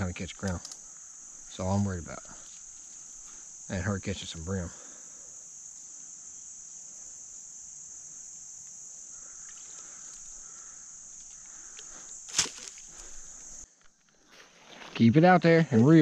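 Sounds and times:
high-pitched insect chorus: 0.0 - 16.0.

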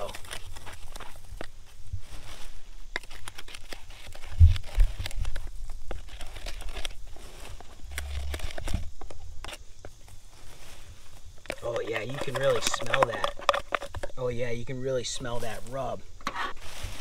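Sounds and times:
popcorn shifting: 0.0 - 1.5, 11.4 - 17.0.

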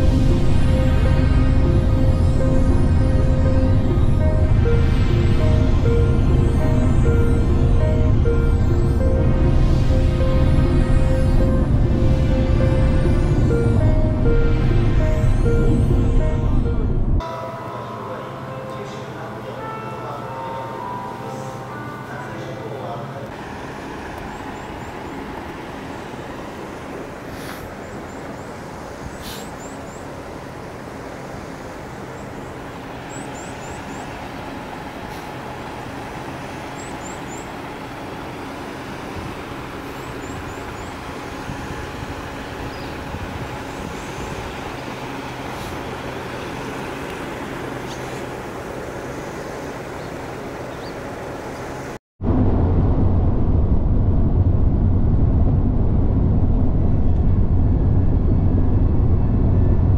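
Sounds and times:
diesel trucks idling: 0.0 - 17.2, 23.3 - 52.0.

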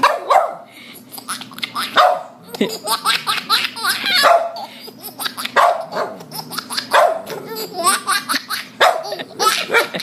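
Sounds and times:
dog barking: 0.0 - 0.7, 1.9 - 2.4, 4.2 - 4.6, 5.6 - 6.2, 6.9 - 7.5, 8.8 - 9.1
baby giggling: 0.8 - 10.0.

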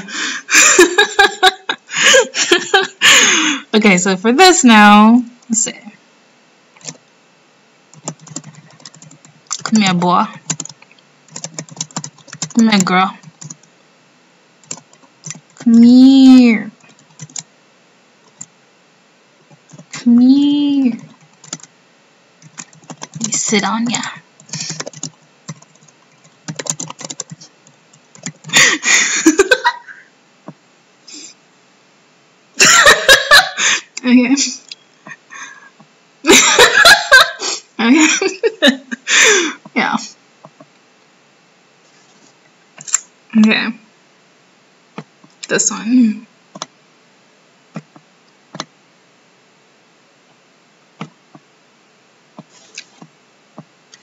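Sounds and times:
woman laughing: 0.0 - 3.6, 28.5 - 30.1, 32.6 - 35.6, 36.2 - 39.6
computer mouse clicking: 6.8 - 7.0, 7.9 - 13.7, 14.6 - 15.7, 16.8 - 17.5, 18.3 - 18.5, 21.0 - 21.7, 22.4 - 23.4, 24.0 - 28.5, 46.5 - 46.7, 47.7 - 48.7
laptop keyboard typing: 6.8 - 7.0, 7.9 - 13.7, 14.6 - 15.8, 16.8 - 17.5, 18.2 - 18.5, 19.5 - 20.0, 21.0 - 21.7, 22.4 - 28.6, 46.5 - 46.7, 47.7 - 48.7.

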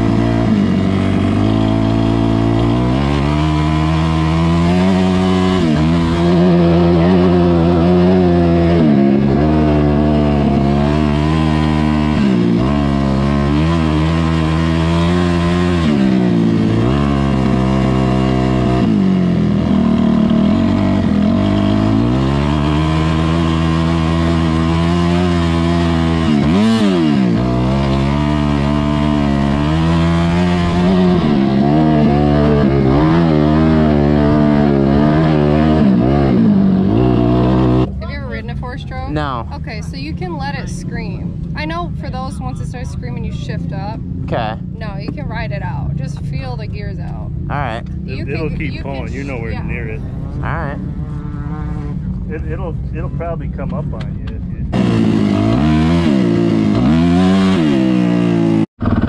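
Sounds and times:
dirt bike engine revving: 0.0 - 54.0, 54.6 - 59.0.

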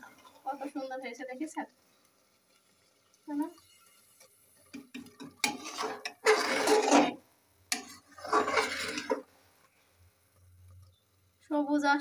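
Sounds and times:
metal ladle scraping a pot: 3.6 - 9.3.

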